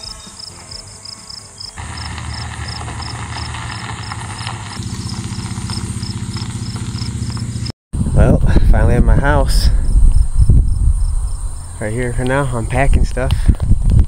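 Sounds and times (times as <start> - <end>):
crickets chirping: 0.0 - 7.7, 9.8 - 12.0
tyres crunching on gravel: 1.6 - 7.7
truck engine idling: 1.8 - 7.7.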